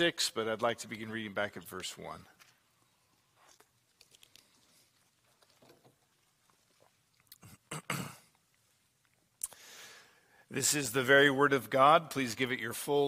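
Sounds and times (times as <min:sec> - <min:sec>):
sipping and swallowing: 0:02.8 - 0:09.6.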